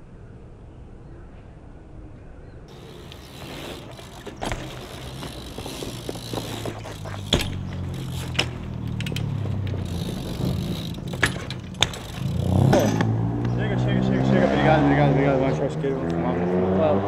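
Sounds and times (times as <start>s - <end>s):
bike tyres rolling over concrete: 2.7s - 14.8s
sharp knocks: 11.0s - 13.2s.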